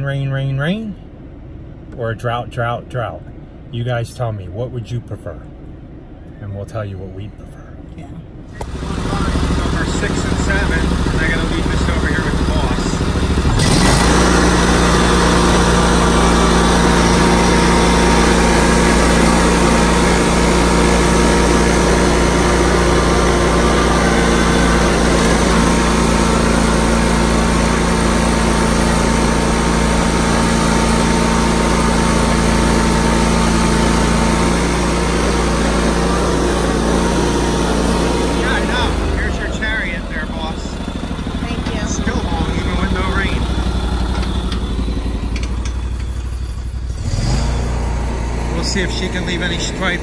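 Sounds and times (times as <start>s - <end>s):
lawn mower engine running: 8.6s - 50.0s.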